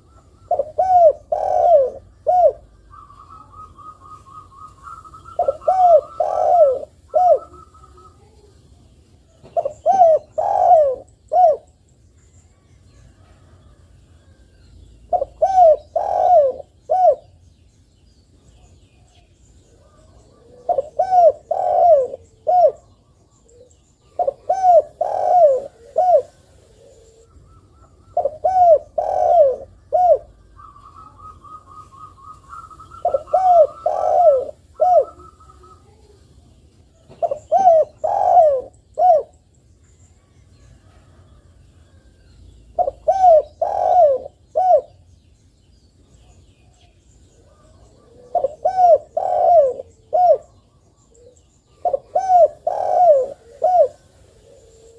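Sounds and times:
dove cooing: 0.0s - 8.5s, 9.3s - 11.7s, 15.1s - 17.4s, 19.7s - 36.2s, 36.9s - 39.4s, 42.7s - 45.0s, 47.4s - 54.9s.

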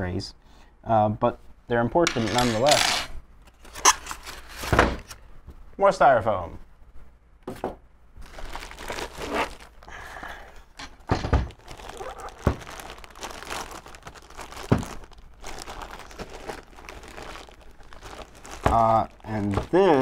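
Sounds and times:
plastic bag crinkling: 8.2s - 10.2s, 11.4s - 20.0s
dull thumps: 11.0s - 13.0s, 14.5s - 15.1s.

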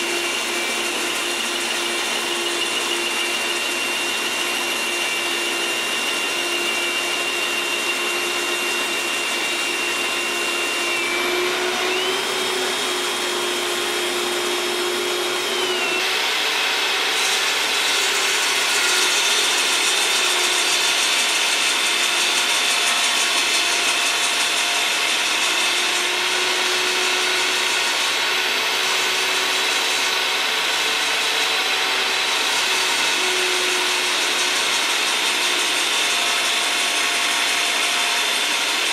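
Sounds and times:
power tool motor whine: 0.0s - 38.9s
saw blade cutting wood: 0.0s - 38.9s.

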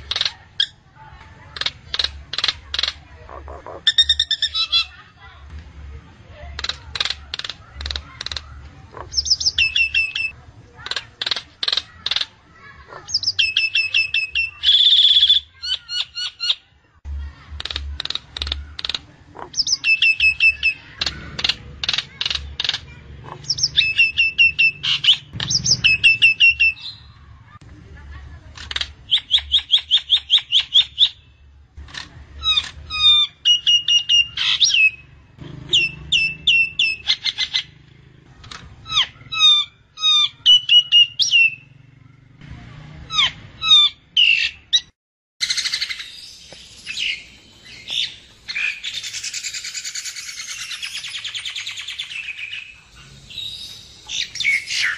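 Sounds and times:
myna chattering: 0.0s - 30.8s, 31.9s - 42.2s.

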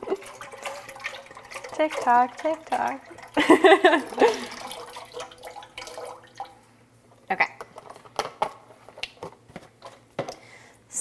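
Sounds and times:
liquid pouring into saucepan: 0.0s - 6.7s.

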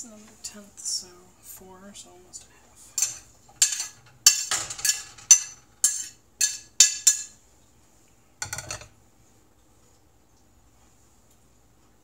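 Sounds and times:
dishware clattering: 3.0s - 7.4s, 8.4s - 8.9s.

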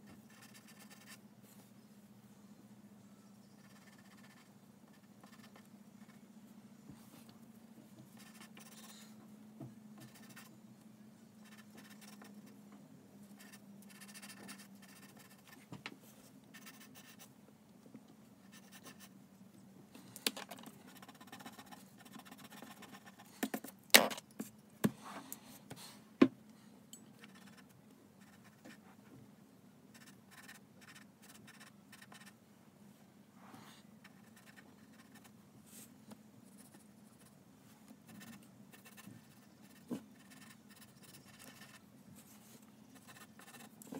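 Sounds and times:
faint low hum: 0.0s - 43.9s
pencil scratching on paper: 0.3s - 1.2s, 3.6s - 6.2s, 8.2s - 9.0s, 10.0s - 10.5s, 11.4s - 12.6s, 13.4s - 15.6s, 16.5s - 17.3s, 20.9s - 23.3s, 29.9s - 32.3s, 34.0s - 35.3s, 38.1s - 41.9s, 43.0s - 43.9s.

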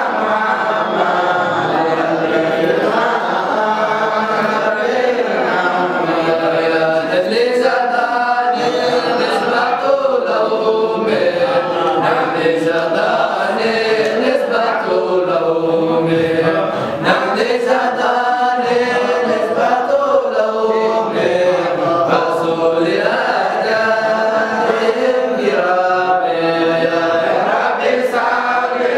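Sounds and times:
men chanting in unison: 0.0s - 28.9s.

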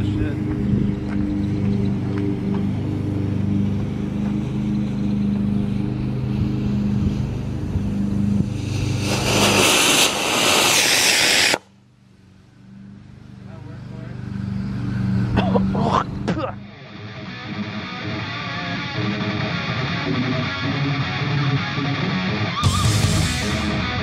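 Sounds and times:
steady low hum: 0.0s - 16.7s
rocket motor hissing rush: 5.7s - 11.7s.

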